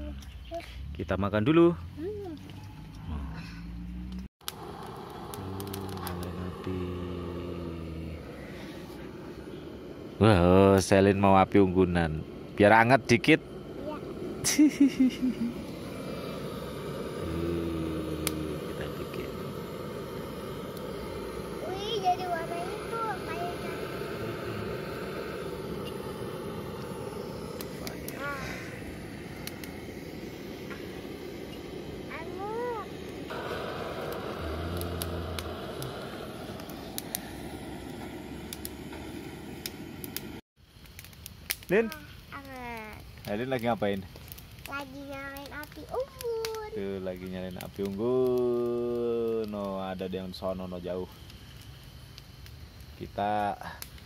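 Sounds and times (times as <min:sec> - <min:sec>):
child speaking: 0:00.0 - 0:00.8, 0:01.9 - 0:02.5, 0:13.8 - 0:14.1, 0:21.6 - 0:23.9, 0:28.1 - 0:28.6, 0:32.1 - 0:33.0, 0:41.8 - 0:43.1, 0:44.7 - 0:46.8
fire crackling: 0:00.0 - 0:54.0
campfire hissing: 0:03.0 - 0:54.0
torch humming: 0:04.0 - 0:41.6
torch click: 0:04.1 - 0:06.8, 0:33.0 - 0:41.7.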